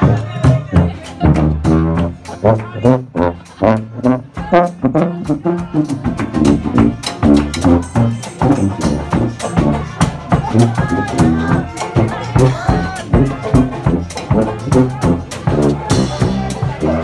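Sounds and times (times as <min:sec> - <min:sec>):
brass instruments playing jazz: 0:00.0 - 0:17.0
sousaphone bass line: 0:00.0 - 0:17.0.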